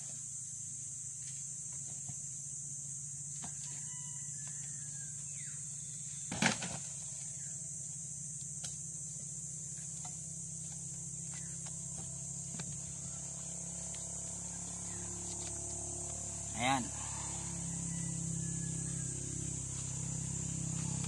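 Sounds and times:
high insect drone: 0.0s - 21.0s.

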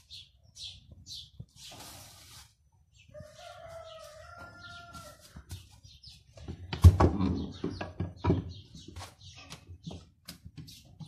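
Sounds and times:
rooster crowing: 3.1s - 5.3s.

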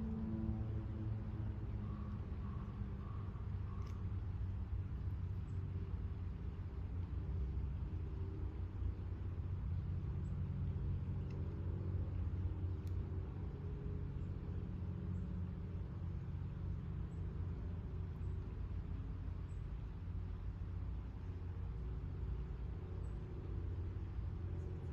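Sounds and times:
distant road traffic rumble: 0.0s - 24.9s
faint high ticks: 3.6s - 4.1s, 11.1s - 11.7s, 12.7s - 13.0s.

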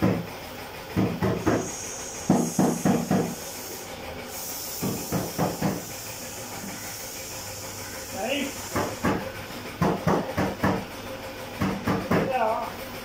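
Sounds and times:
compressed air hissing: 1.2s - 9.4s
rapid low knocking: 4.8s - 12.4s.

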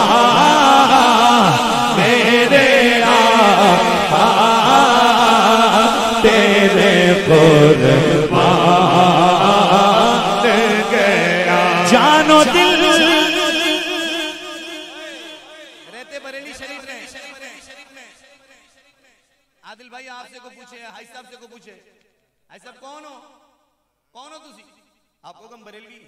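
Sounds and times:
voices chanting along: 0.0s - 16.1s
man chanting into a microphone: 0.0s - 18.2s.

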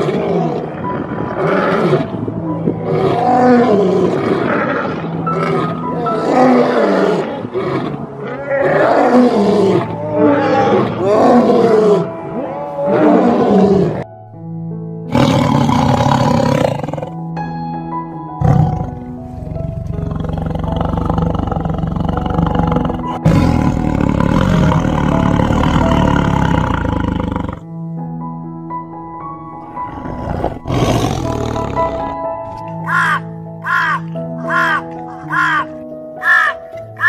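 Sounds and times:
rough growling: 0.0s - 14.0s, 15.1s - 17.2s, 18.4s - 27.7s, 29.7s - 32.2s
lion roaring: 0.0s - 14.1s, 15.1s - 17.2s, 18.4s - 27.7s, 29.8s - 32.2s
background music: 0.0s - 37.0s.

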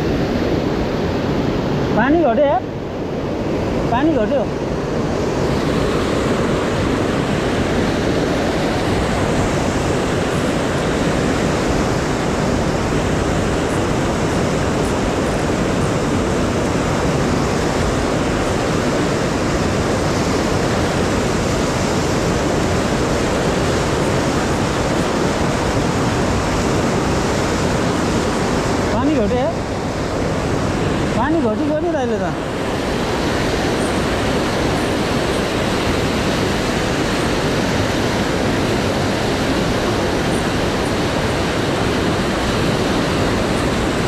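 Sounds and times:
river rushing through rapids: 0.0s - 44.0s.

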